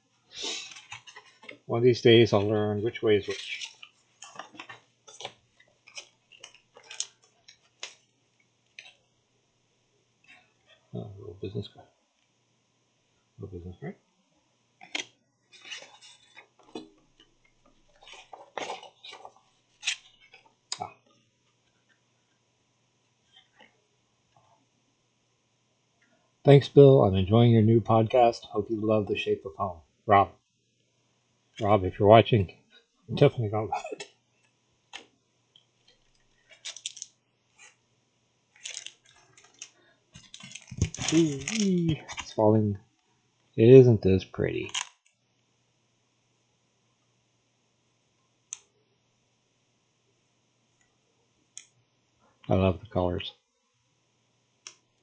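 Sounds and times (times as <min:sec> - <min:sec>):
paper and packaging rustling: 0:00.5 - 0:01.7, 0:02.4 - 0:08.1, 0:14.9 - 0:16.9, 0:17.8 - 0:20.5, 0:35.9 - 0:37.8, 0:38.6 - 0:42.4.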